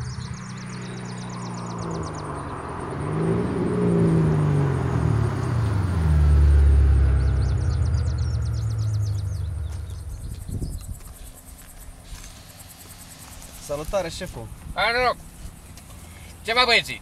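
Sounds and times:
car driving past: 0.0s - 10.9s
car engine idling: 0.0s - 17.0s.

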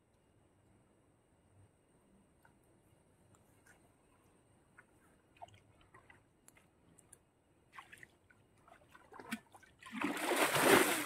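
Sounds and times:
loud water splash: 9.9s - 11.0s.

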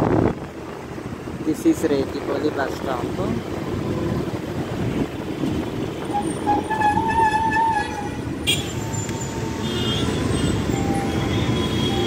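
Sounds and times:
bus engine and road rumble: 0.0s - 12.0s
vehicle horn: 5.9s - 12.0s.

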